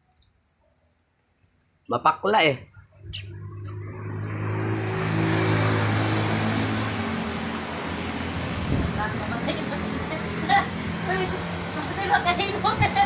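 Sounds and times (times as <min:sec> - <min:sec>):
vehicle driving past: 0:02.8 - 0:13.0.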